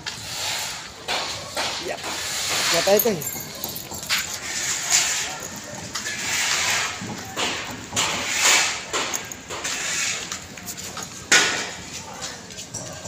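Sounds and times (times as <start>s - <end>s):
footsteps scuffing on concrete: 9.0s - 12.8s.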